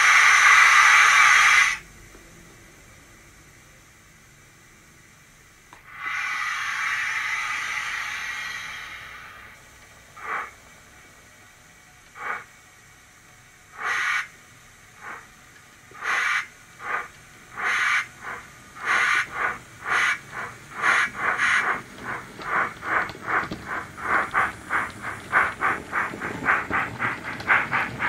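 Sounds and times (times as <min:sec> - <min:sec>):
model steam locomotive chuffs: 0:00.0 - 0:01.8, 0:05.8 - 0:10.7, 0:12.1 - 0:13.0, 0:13.7 - 0:15.3, 0:15.9 - 0:28.0.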